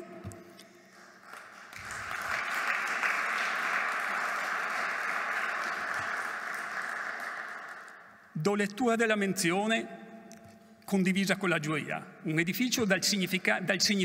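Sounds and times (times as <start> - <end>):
audience applauding: 0.8 - 8.2.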